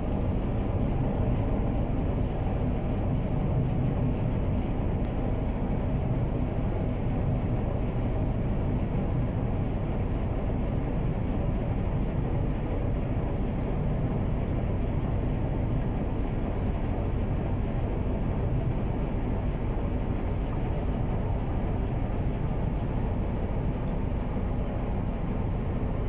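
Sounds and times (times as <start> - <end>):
ship engines droning: 0.0 - 26.0
water noise: 0.0 - 26.0.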